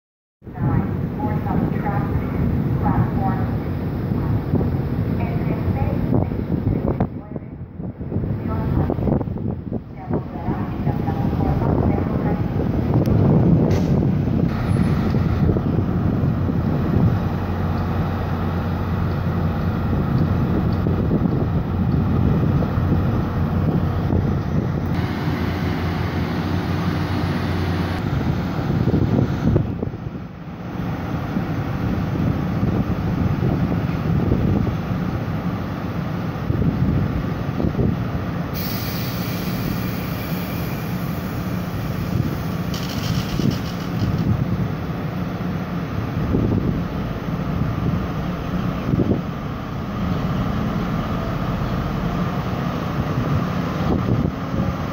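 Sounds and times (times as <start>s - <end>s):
wind buffeting microphone: 0.5s - 38.4s, 41.3s - 44.9s, 45.9s - 54.9s
diesel locomotive idling: 0.5s - 54.9s
locomotive engine idling: 14.6s - 28.7s.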